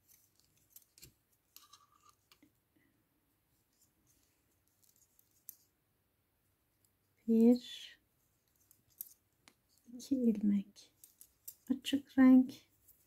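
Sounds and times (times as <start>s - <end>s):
metal knitting needles clicking: 11.0s - 11.7s.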